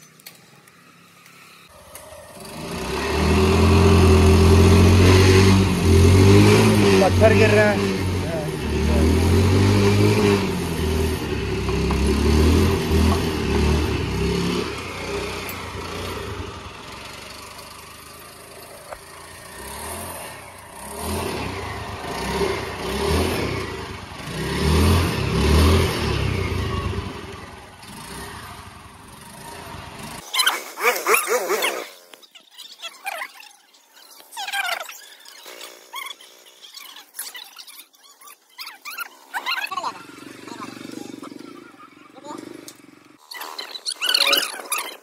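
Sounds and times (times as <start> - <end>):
vehicle engine revving: 1.6 - 30.3, 39.4 - 43.3.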